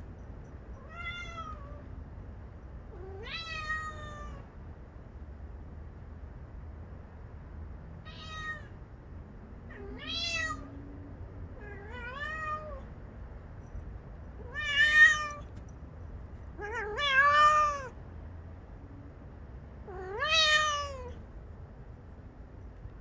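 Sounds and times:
cat meowing: 0.8 - 1.8, 2.9 - 4.4, 8.0 - 8.8, 9.7 - 10.7, 11.6 - 12.9, 14.4 - 15.5, 16.6 - 18.0, 19.9 - 21.2.

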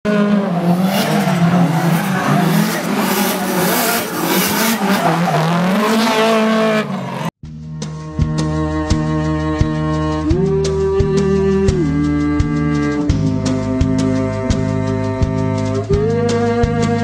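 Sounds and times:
car engine revving: 0.1 - 7.4
music: 7.4 - 17.0.

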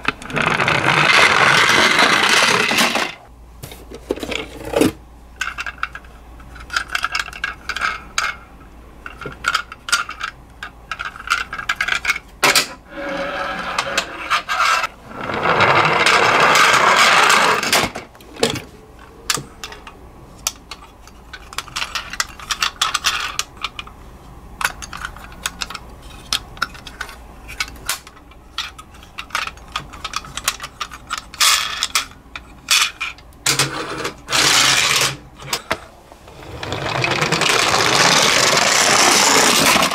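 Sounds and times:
toy cars clicking and clattering: 0.1 - 3.2, 5.4 - 8.4, 9.0 - 12.7, 19.3 - 23.9, 24.6 - 35.8, 36.4 - 39.9.

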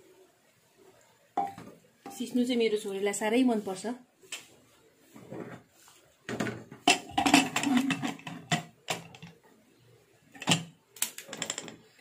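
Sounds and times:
metal lid clanking and scraping: 6.4 - 9.3.

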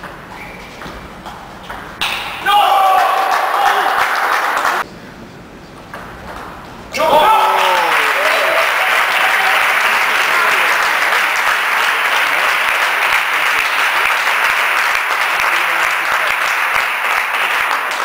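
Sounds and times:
spectators applauding: 2.5 - 4.9, 7.2 - 18.0.

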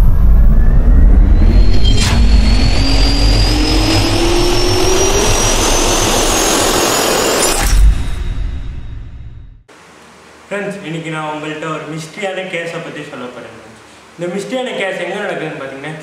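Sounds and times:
jet turbine spooling up: 0.0 - 9.0.

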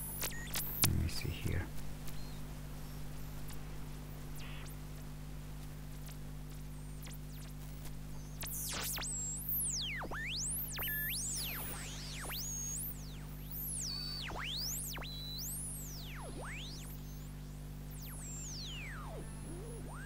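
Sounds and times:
radio hum and hiss: 0.0 - 20.0
sweeping radio whistles: 4.4 - 4.7.

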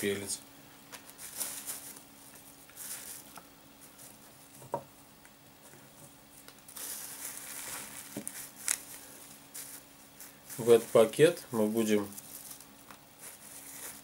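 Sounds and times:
plastic bags crinkling: 0.9 - 2.0, 6.7 - 11.2, 12.0 - 14.0.

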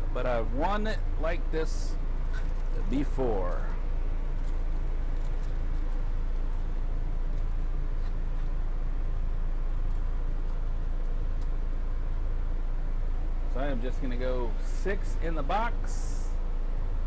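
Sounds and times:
low motor rumble: 0.0 - 17.0.

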